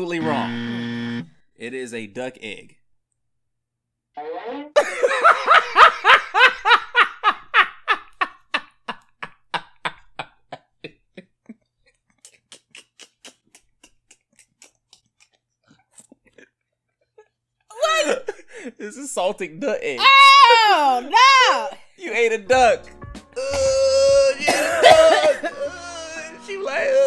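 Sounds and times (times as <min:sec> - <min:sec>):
man laughing hard: 0:04.8 - 0:11.6, 0:23.4 - 0:26.6.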